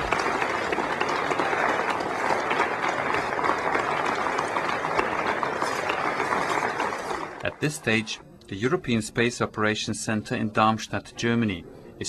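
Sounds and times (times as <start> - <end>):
crowd applauding: 0.0 - 8.1.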